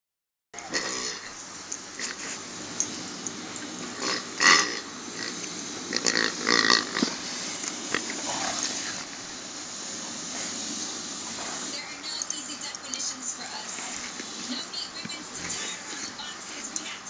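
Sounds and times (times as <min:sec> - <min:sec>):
rubber toy pig grunting: 0:04.0 - 0:07.2.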